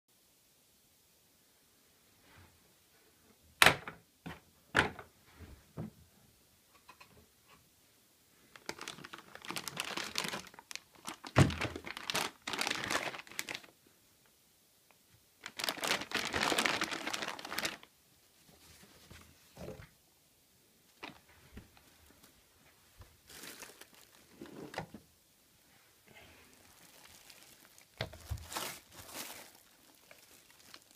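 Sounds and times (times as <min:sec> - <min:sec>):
plastic wrapping and paper crinkling: 0:08.5 - 0:13.8, 0:15.4 - 0:17.9, 0:20.9 - 0:22.4, 0:23.0 - 0:25.0, 0:26.3 - 0:30.9.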